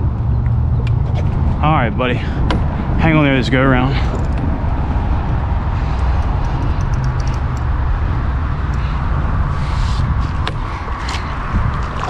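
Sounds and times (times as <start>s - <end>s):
wind buffeting microphone: 0.0s - 12.0s
faint high ticks: 6.0s - 7.7s.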